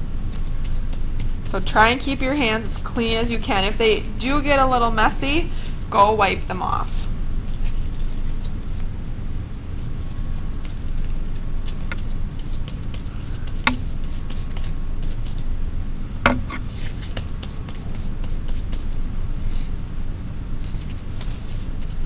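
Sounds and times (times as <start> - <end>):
brush tapping on paper: 12.9 - 14.6, 16.3 - 16.6.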